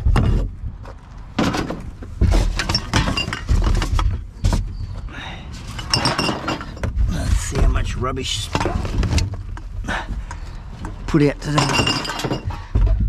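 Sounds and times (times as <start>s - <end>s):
rubbish rustling and clattering in bin: 1.4s - 7.6s.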